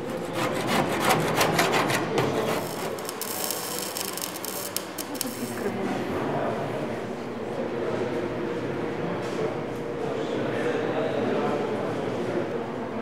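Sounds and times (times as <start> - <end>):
metal scraping strokes: 0.1 - 5.6
electric arc welding crackle: 2.4 - 5.8.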